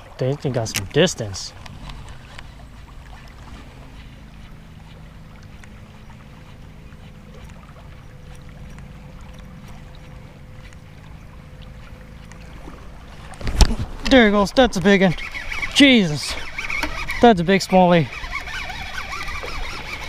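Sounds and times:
flowing river water: 0:00.0 - 0:20.0
faint ticks: 0:03.9 - 0:12.4.

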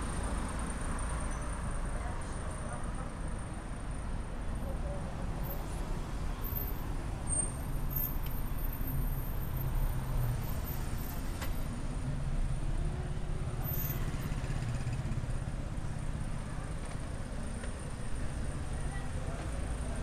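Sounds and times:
cars driving slowly: 0:00.0 - 0:20.0.

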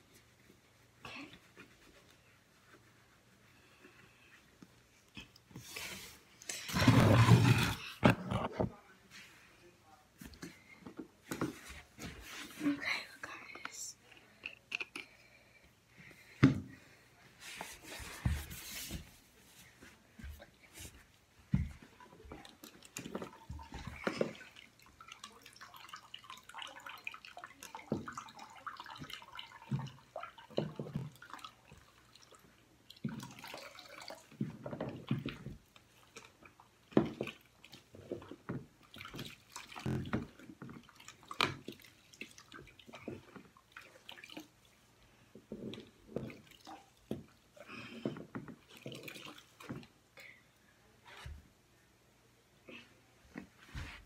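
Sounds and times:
water splashing and dripping: 0:21.9 - 0:35.4, 0:38.8 - 0:44.8.

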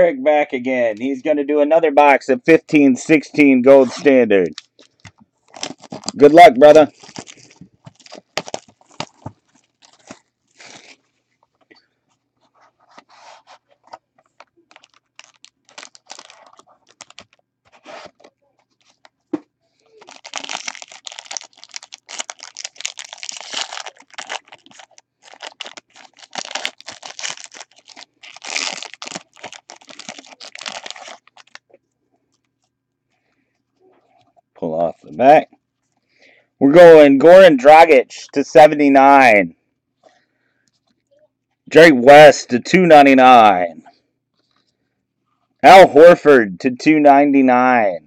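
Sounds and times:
foil wrapper tearing and crinkling: 0:04.5 - 0:11.0, 0:14.7 - 0:19.1, 0:19.9 - 0:31.6.

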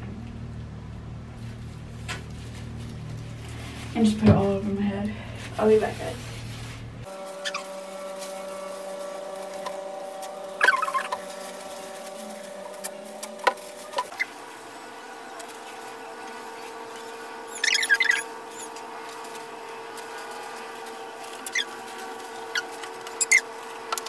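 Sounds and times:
steady hum: 0:00.0 - 0:24.0
plastic gloves squeaking in wet hair: 0:05.6 - 0:23.8.

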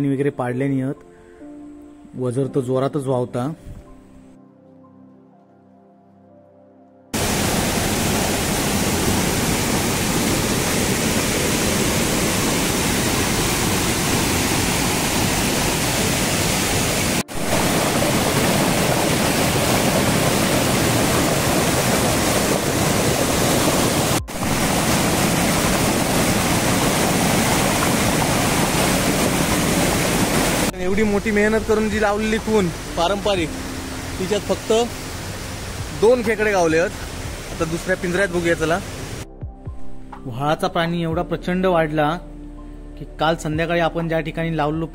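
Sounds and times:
stream rushing over waterfall: 0:07.2 - 0:39.3.

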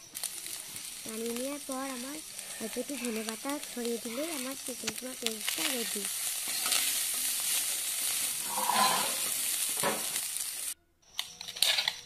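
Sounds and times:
meat sizzling in a frying pan: 0:00.0 - 0:10.8
steel spatula scraping pan: 0:01.8 - 0:04.5, 0:05.4 - 0:10.2.

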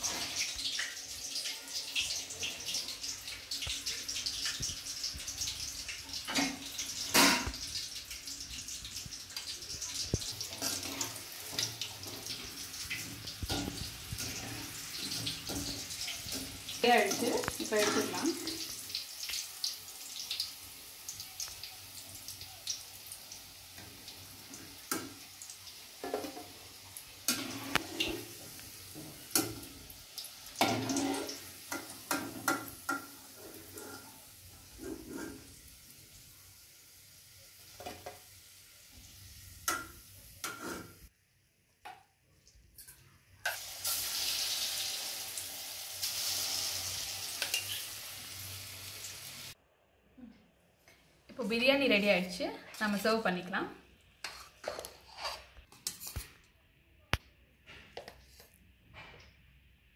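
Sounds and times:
meat deep-frying in oil: 0:00.0 - 0:41.1, 0:43.3 - 0:49.6.

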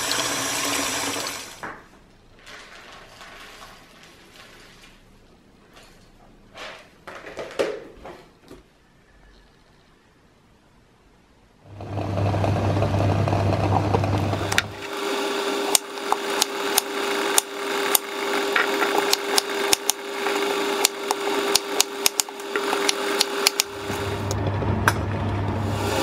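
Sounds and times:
machine hum: 0:11.4 - 0:26.0.

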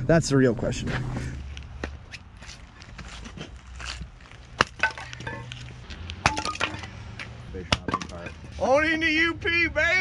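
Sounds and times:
axe chopping firewood: 0:04.5 - 0:05.5, 0:06.2 - 0:06.9, 0:07.7 - 0:08.3
split wood pieces clattering: 0:04.6 - 0:05.6, 0:06.2 - 0:06.9.

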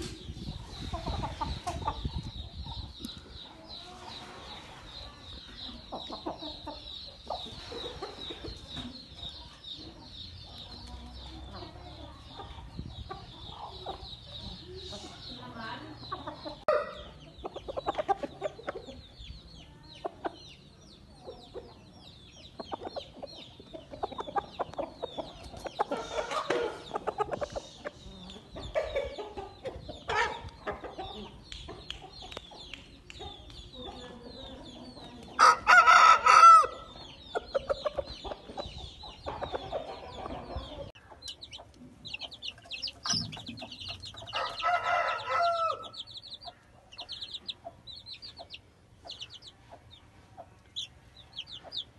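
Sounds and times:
chickens clucking and chirping: 0:00.0 - 0:51.9
rooster crowing: 0:35.4 - 0:36.8, 0:44.3 - 0:46.0.

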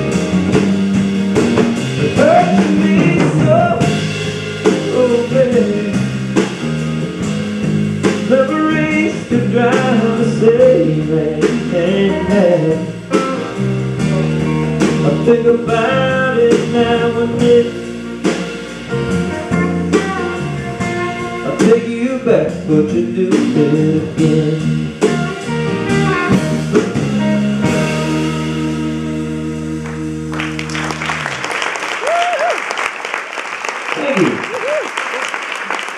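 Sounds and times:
lead guitar line bending: 0:00.0 - 0:31.4
blues-rock band playing: 0:00.0 - 0:32.2
audience applause: 0:29.8 - 0:35.9.

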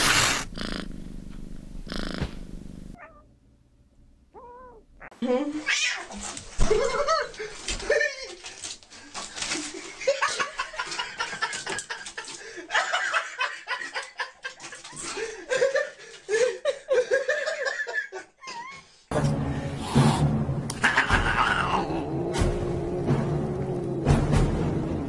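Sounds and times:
person laughing and giggling: 0:06.6 - 0:08.6, 0:09.6 - 0:18.9, 0:20.7 - 0:21.8.

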